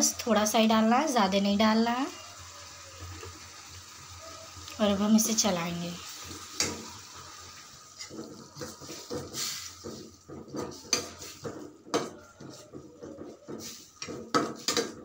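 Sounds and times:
spoon knocking on pan: 0:06.6 - 0:06.9, 0:08.0 - 0:15.0.

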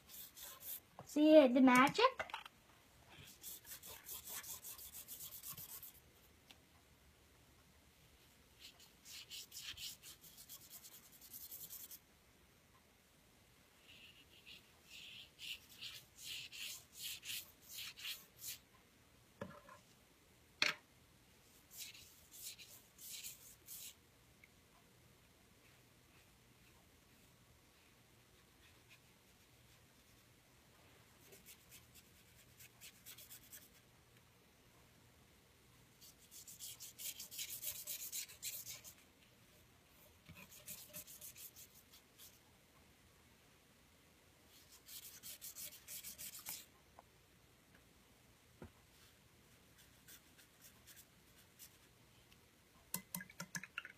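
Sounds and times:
paintbrush scrubbing on paper: 0:00.0 - 0:00.9, 0:03.2 - 0:06.0, 0:08.6 - 0:12.0, 0:13.9 - 0:18.6, 0:21.5 - 0:24.0, 0:36.0 - 0:39.0, 0:40.4 - 0:42.4, 0:44.5 - 0:46.7, 0:49.0 - 0:51.9.

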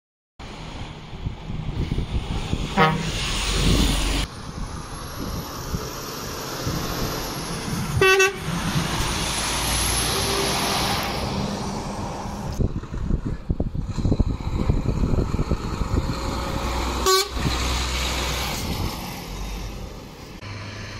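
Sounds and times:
heavy lorries driving: 0:00.4 - 0:20.9
truck horn toots: 0:02.8 - 0:03.2, 0:08.0 - 0:08.5, 0:17.0 - 0:17.5.

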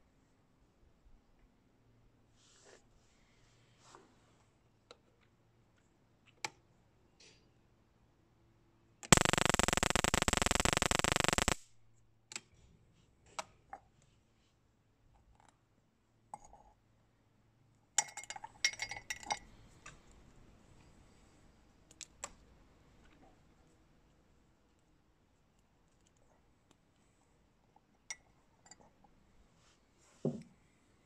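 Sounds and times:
rapid harsh sparks: 0:09.2 - 0:11.6.

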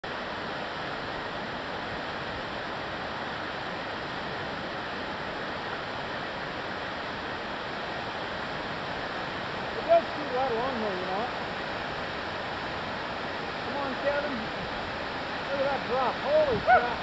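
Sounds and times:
whitewater rapids rushing: 0:00.1 - 0:17.0.

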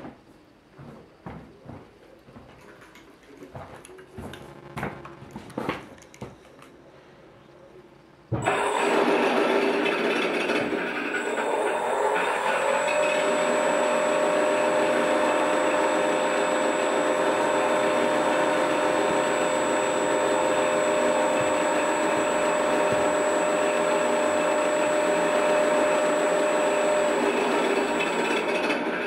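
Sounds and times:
simulated engine drone: 0:04.4 - 0:05.5.

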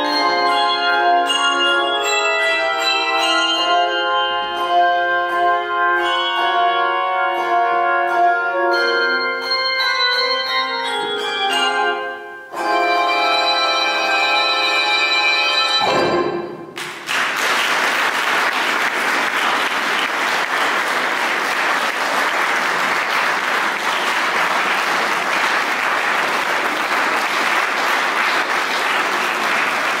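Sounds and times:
handbell choir chord: 0:00.0 - 0:07.0
audience applauding: 0:16.8 - 0:30.0.

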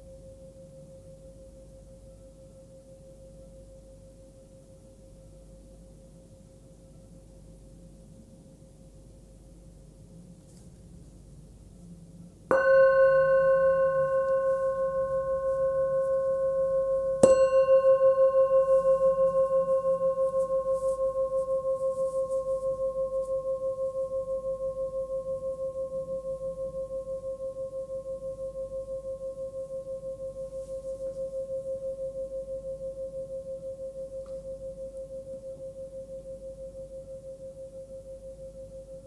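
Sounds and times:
singing bowl ringing: 0:12.5 - 0:39.0.

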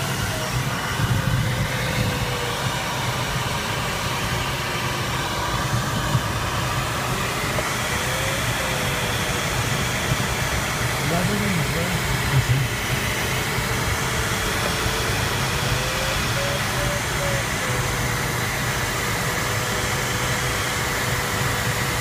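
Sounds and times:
airflow rushing over canopy: 0:00.0 - 0:22.0.

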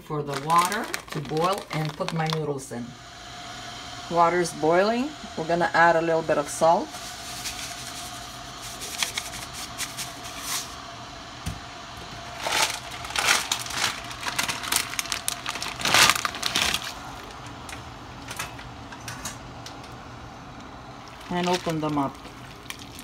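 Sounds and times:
plastic noodle pack crinkling: 0:00.0 - 0:02.6, 0:12.2 - 0:17.4, 0:21.0 - 0:23.0.

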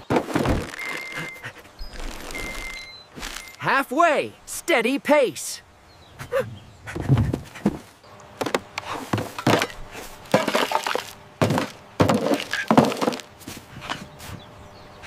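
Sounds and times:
bottles and cans clattering into bins: 0:00.0 - 0:01.2, 0:09.2 - 0:13.3.

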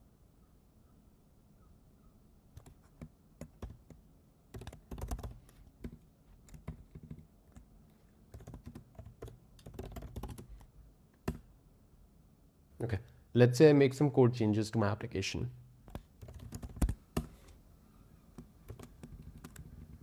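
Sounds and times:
typing on computer keyboard: 0:02.6 - 0:07.7, 0:08.3 - 0:11.4, 0:15.9 - 0:17.3, 0:18.4 - 0:20.0.

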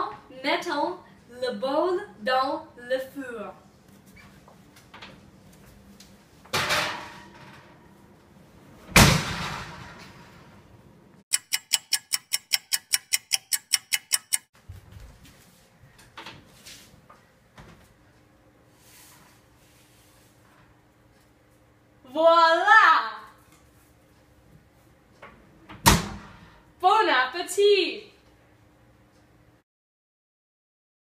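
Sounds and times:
oven door banging shut: 0:08.9 - 0:10.1, 0:25.8 - 0:26.4.

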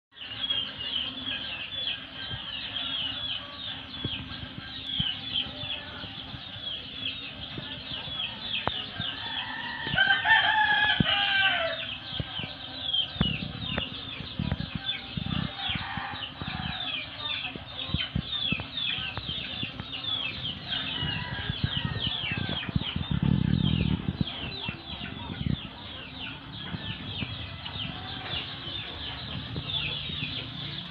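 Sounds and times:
birds chirping: 0:00.1 - 0:30.9
rooster crowing: 0:09.1 - 0:11.8.

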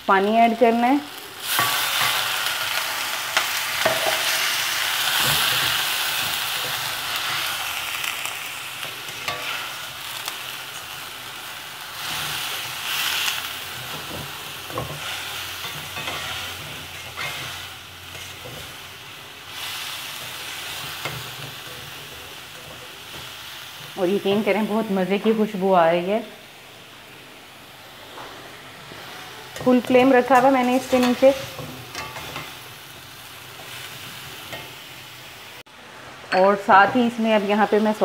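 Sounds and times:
food sizzling in a wok: 0:00.0 - 0:38.0
metal spatula scraping a pan: 0:12.0 - 0:18.9, 0:28.8 - 0:32.6.

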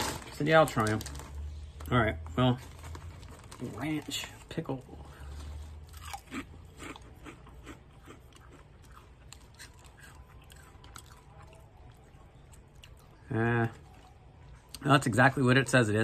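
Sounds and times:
chewing: 0:05.1 - 0:14.8
crunching potato chip: 0:05.5 - 0:14.1.

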